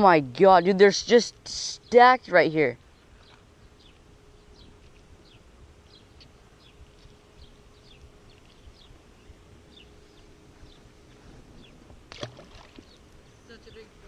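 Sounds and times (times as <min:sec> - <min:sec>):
faint steady hum: 0:00.0 - 0:14.0
small birds chirping: 0:00.3 - 0:14.0.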